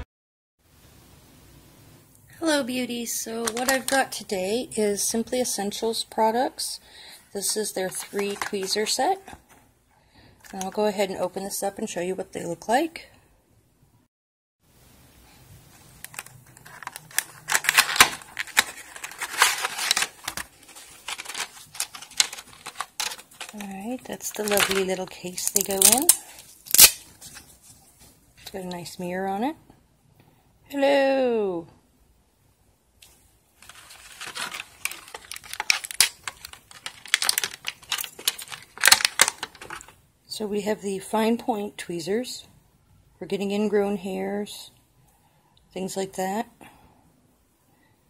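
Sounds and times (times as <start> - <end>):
plastic packaging clicking and crinkling: 3.4 - 4.2, 7.8 - 9.4, 15.8 - 27.5, 33.6 - 40.0.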